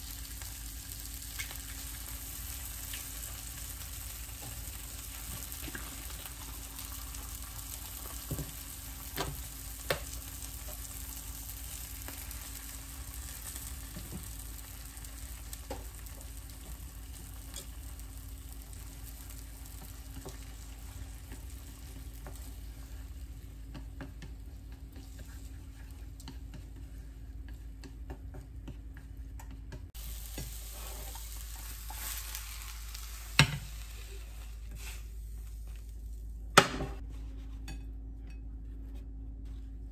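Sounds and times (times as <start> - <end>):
eggs sizzling in a frying pan: 0.0 - 36.8
chopsticks tapping on a pan: 9.2 - 10.8, 23.6 - 25.3, 26.2 - 30.5.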